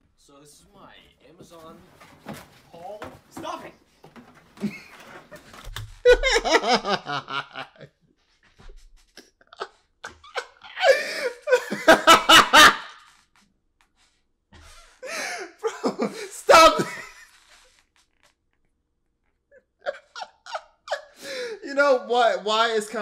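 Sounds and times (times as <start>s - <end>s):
man laughing: 4.6s - 7.9s, 9.5s - 13.0s, 15.0s - 17.2s, 19.8s - 21.4s.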